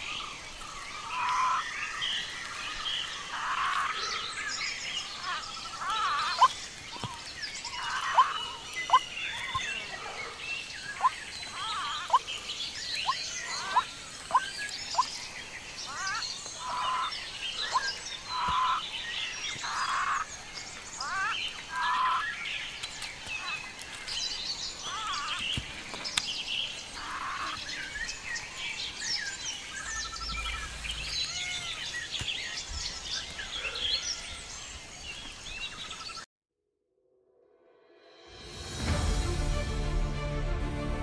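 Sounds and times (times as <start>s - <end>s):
forest birds chirping: 0.0s - 36.3s
bird trills: 5.0s - 9.9s, 10.8s - 15.3s, 15.9s - 20.3s, 29.1s - 34.7s.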